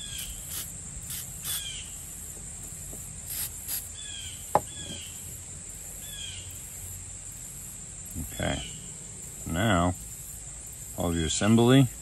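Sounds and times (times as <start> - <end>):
insects trilling: 0.0 - 12.0
bird chirps: 1.4 - 2.0, 3.9 - 5.3, 6.0 - 6.7.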